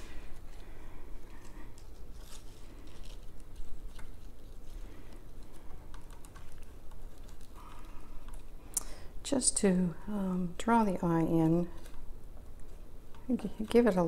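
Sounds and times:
rustling of stems and foliage: 0.0 - 8.6.

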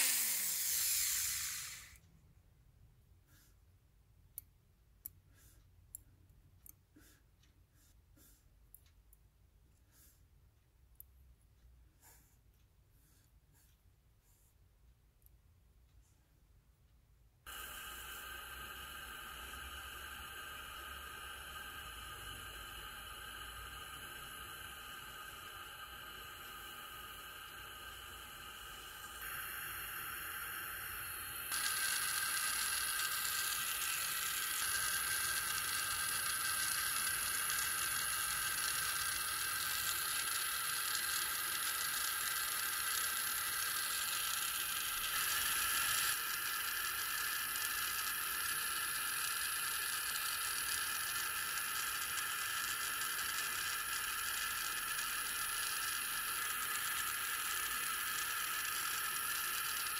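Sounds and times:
gas torch hissing: 0.0 - 2.0, 17.5 - 59.9.

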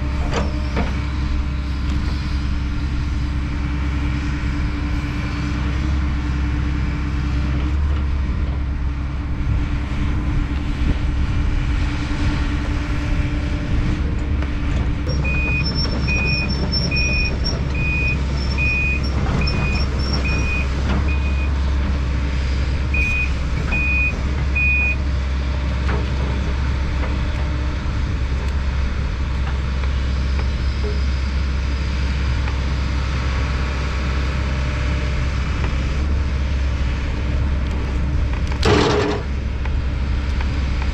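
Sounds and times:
excavator diesel engine running: 0.0 - 40.9
high warning beeps: 15.1 - 21.5.

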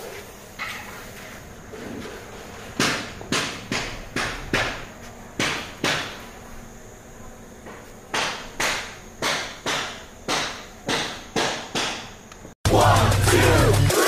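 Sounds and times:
sharp knocks: 2.8 - 4.8, 5.4 - 6.2, 7.7 - 12.2.

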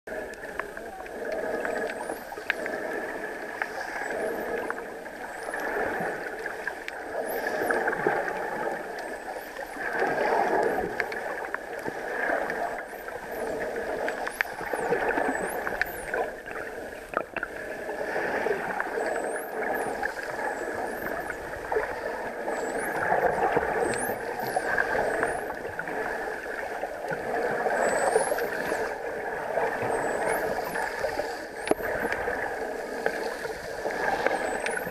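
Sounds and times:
muffled underwater noise: 0.1 - 34.9.

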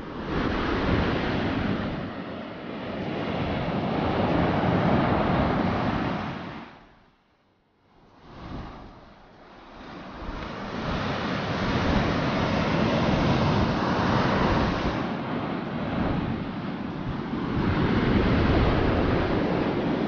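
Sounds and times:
wind rushing on microphone: 0.0 - 7.0, 8.0 - 20.0
surf breaking on beach: 9.6 - 20.0.

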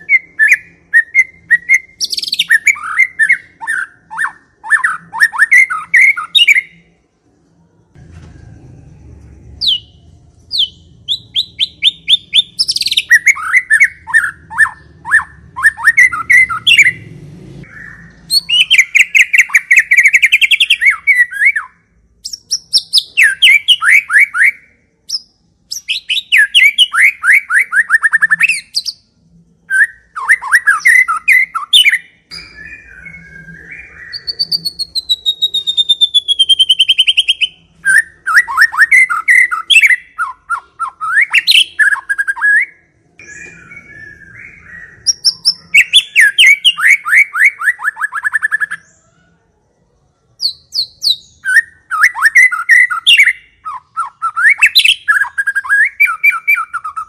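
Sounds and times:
bird singing chirping phrases: 0.0 - 8.0, 9.0 - 57.0.

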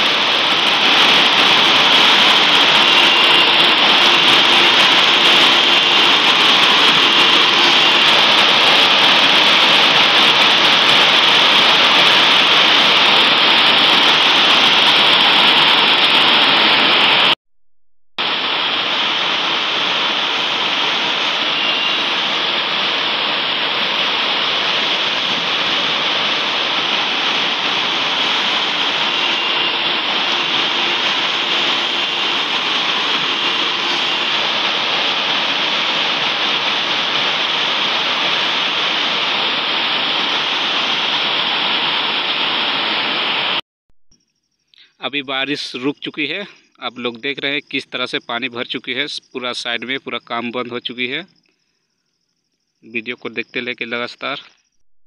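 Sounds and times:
heavy rain pouring: 0.0 - 17.4, 18.2 - 43.6.

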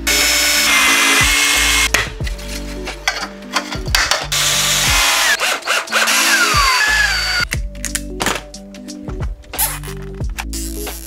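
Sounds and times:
cordless drill driving screws: 0.0 - 1.9, 4.3 - 7.4
background music: 0.0 - 11.0.

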